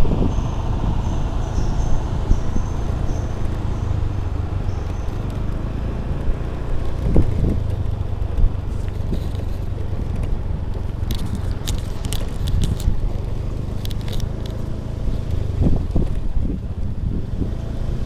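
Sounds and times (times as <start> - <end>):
small motorbike engine: 0.0 - 18.0
sharp clicks and rattles: 4.6 - 16.9.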